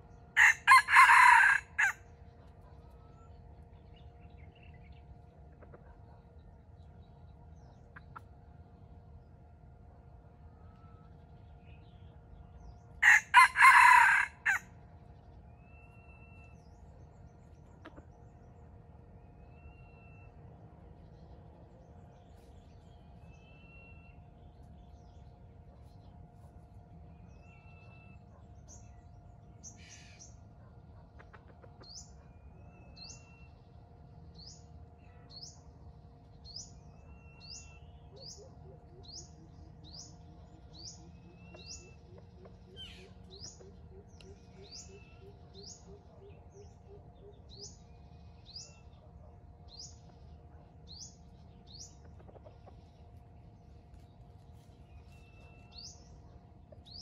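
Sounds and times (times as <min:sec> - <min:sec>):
bird chirping: 0:21.0 - 0:57.0.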